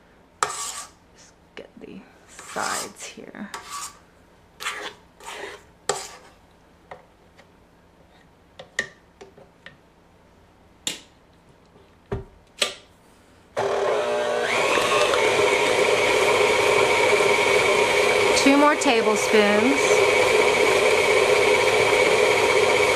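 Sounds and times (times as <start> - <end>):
spatula scraping metal bowl: 0.4 - 1.0, 2.3 - 3.0, 3.6 - 4.0, 4.6 - 6.4
stand mixer motor whine: 13.6 - 22.9.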